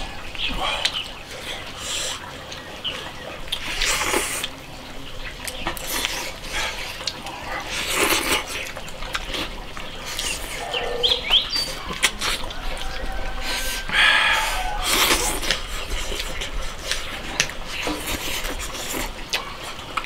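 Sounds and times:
chewing: 0:00.0 - 0:20.0
wet slurps of broth: 0:03.5 - 0:04.6, 0:05.8 - 0:19.9.

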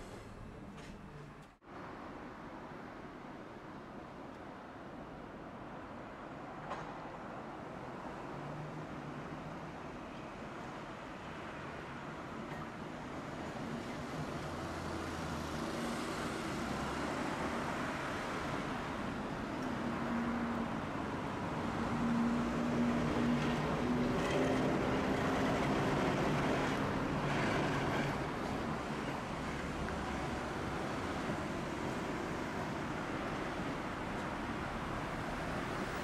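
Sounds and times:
streetcar running: 0:11.6 - 0:36.0
cars passing: 0:13.6 - 0:36.0.

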